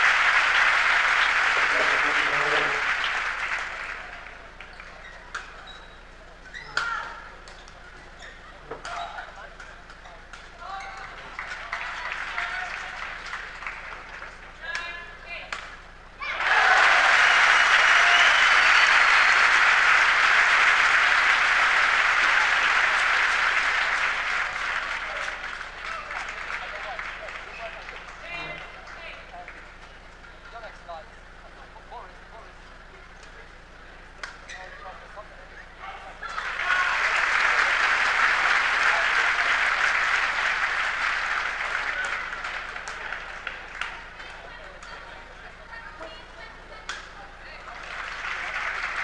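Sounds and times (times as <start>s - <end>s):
crowd applauding: 0.0s - 5.0s, 11.1s - 14.4s, 16.2s - 29.7s, 36.2s - 44.6s, 47.7s - 49.0s.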